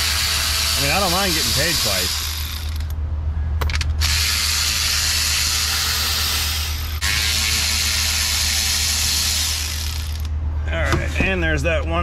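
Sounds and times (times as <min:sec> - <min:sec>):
cordless electric ratchet running: 0:00.0 - 0:02.9, 0:04.0 - 0:10.3.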